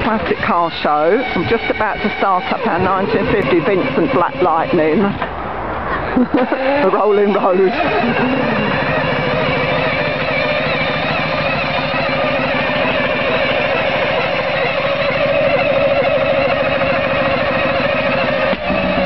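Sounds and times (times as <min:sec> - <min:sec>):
motorcycle engine running: 0:00.0 - 0:05.3, 0:06.4 - 0:19.0.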